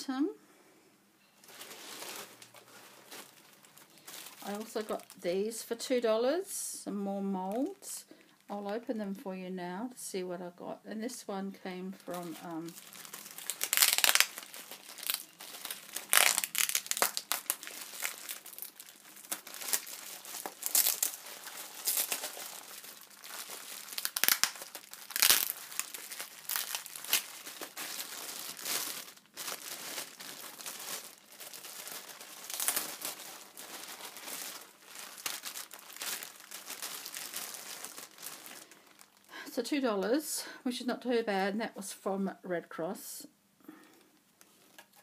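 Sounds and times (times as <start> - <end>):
thin plastic crinkling: 1.2 - 5.6, 11.9 - 39.3, 44.4 - 45.0.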